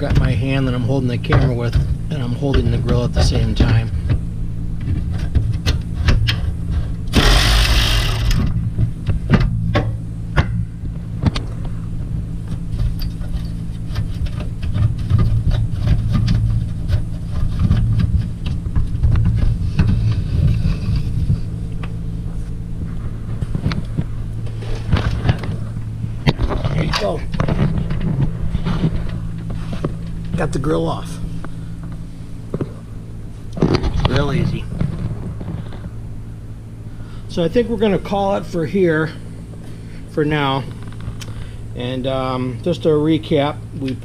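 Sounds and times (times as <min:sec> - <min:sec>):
steady low hum: 0:00.0 - 0:44.0
cordless ratchet running: 0:07.2 - 0:08.4.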